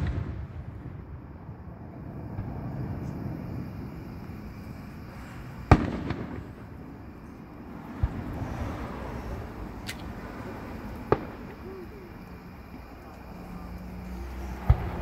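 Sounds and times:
firework bang: 0:00.0 - 0:04.0, 0:05.2 - 0:09.1, 0:10.9 - 0:12.0, 0:14.6 - 0:15.0
firework crackle: 0:00.0 - 0:15.0.

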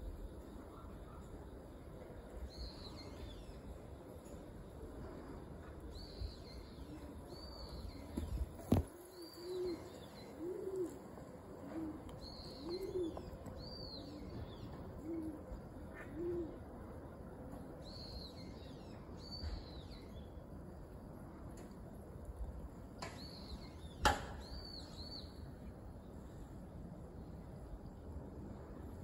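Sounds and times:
dove cooing: 0:08.6 - 0:13.4, 0:14.0 - 0:16.6.

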